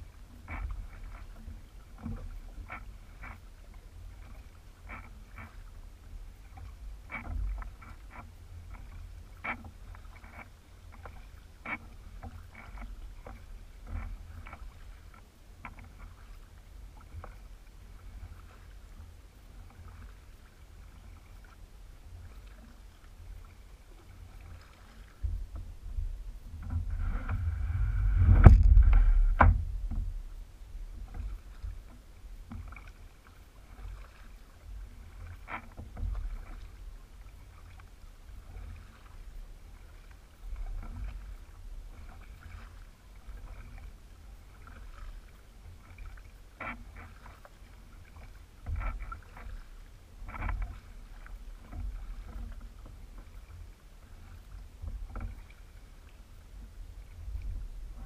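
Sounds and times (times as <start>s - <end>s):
paddle strokes ticks and drips: 0.0s - 58.0s
low rumble: 25.2s - 32.5s
sharp knock: 28.3s - 29.7s.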